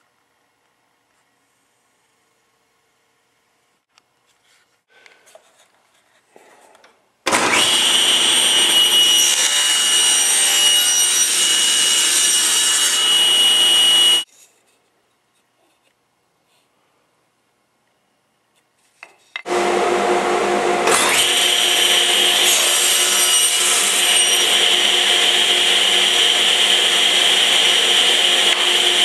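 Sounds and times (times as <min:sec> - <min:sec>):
table saw cutting wood: 0:07.3 - 0:14.3, 0:19.5 - 0:29.0.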